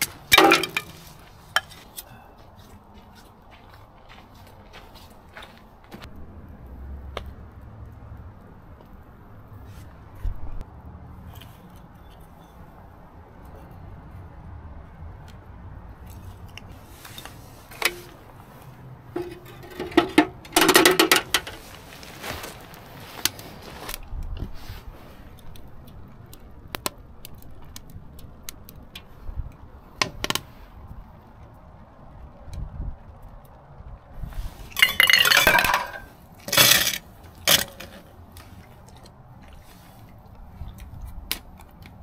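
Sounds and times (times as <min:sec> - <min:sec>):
wooden sticks clattering on metal stove: 0:00.0 - 0:01.9, 0:17.0 - 0:18.2, 0:19.1 - 0:22.6, 0:34.6 - 0:38.5
fire ticking: 0:25.2 - 0:34.1.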